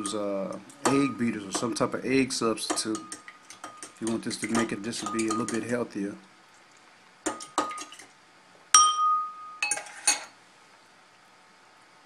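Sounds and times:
utensil clinking against bowls: 0.0 - 1.9, 2.5 - 5.8, 7.3 - 8.1, 8.8 - 10.4.

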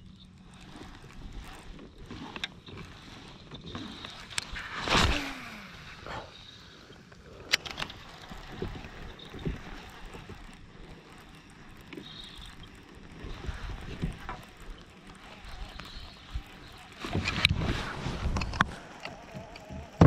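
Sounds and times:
small clicks and knocks: 0.0 - 5.1, 7.1 - 20.0
fishing reel clicks: 0.0 - 20.0
rustling of fishing line: 0.0 - 20.0.

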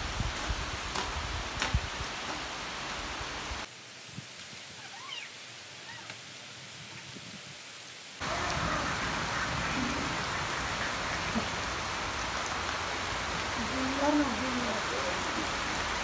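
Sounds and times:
steady rain: 0.0 - 16.0
animal call: 4.8 - 6.2.

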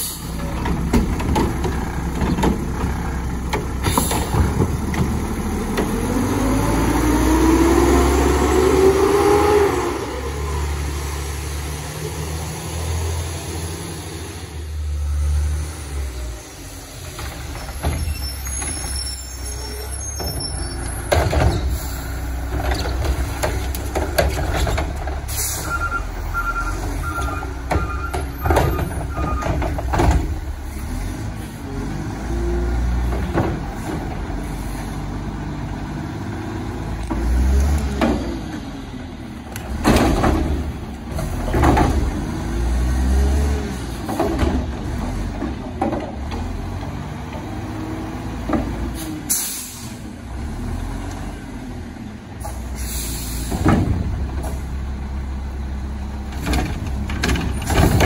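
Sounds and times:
garbage truck diesel engine revving: 0.0 - 17.8, 18.5 - 58.0
metal clanks and bangs: 56.4 - 58.0.

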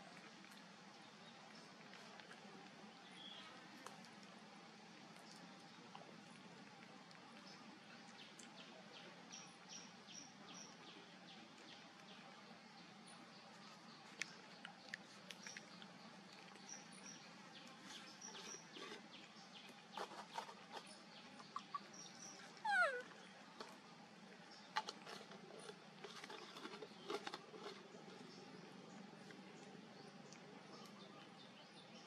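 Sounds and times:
baby monkey squealing: 22.6 - 23.0.

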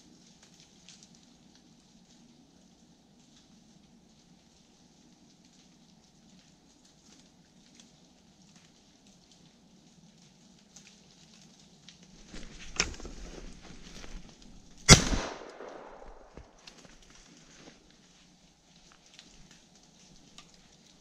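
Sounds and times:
rustling through snow and leaves: 10.9 - 21.0
sharp crack: 12.2 - 17.7
shotgun shot with echo: 14.9 - 16.5.

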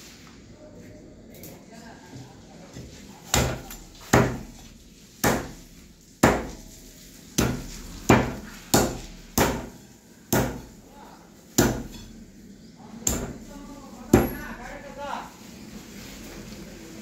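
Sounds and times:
cleaver chopping on wooden block: 3.3 - 4.6, 5.2 - 5.6, 6.2 - 6.6, 7.4 - 10.7, 11.6 - 12.0.

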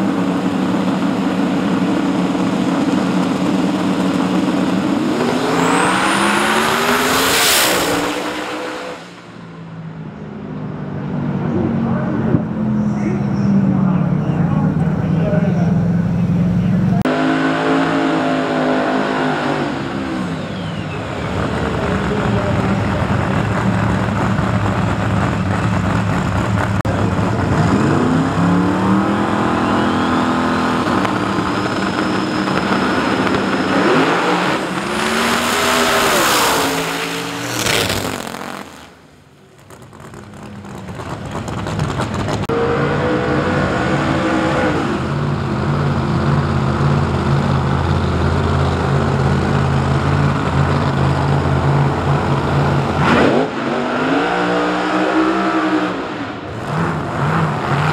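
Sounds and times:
drag car engines revving: 0.0 - 57.9
full-throttle car launch: 11.6 - 57.9.

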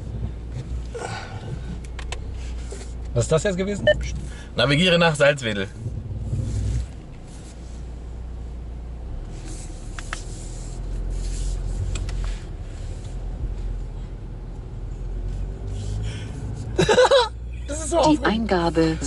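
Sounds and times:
low car cabin hum: 0.0 - 19.0
faint rustling: 5.7 - 8.6.

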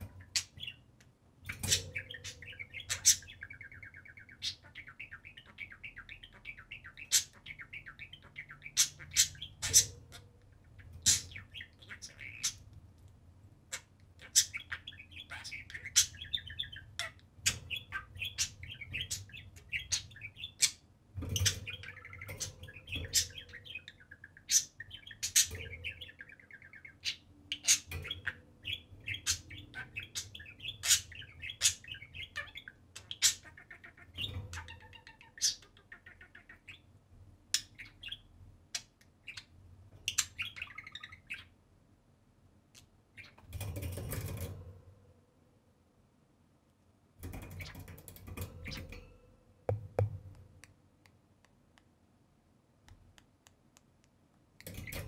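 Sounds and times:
budgerigars chattering: 1.5 - 12.7, 13.7 - 20.8, 21.4 - 36.8.

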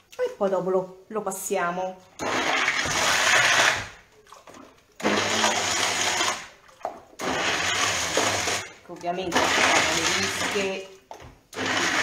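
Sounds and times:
electric blender whirring: 2.2 - 4.0, 5.0 - 6.5, 7.2 - 8.7, 9.3 - 10.8, 11.5 - 12.0.

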